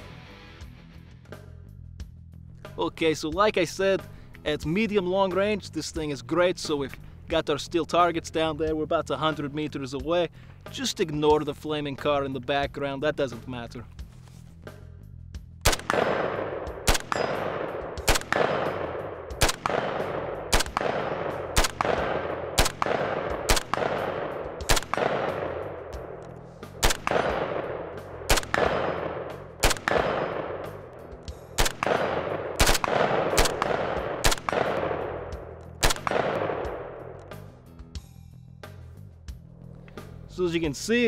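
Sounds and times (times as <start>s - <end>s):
rifle shots echoing: 15.6s - 37.4s
steel target ringing: 17.0s - 17.8s.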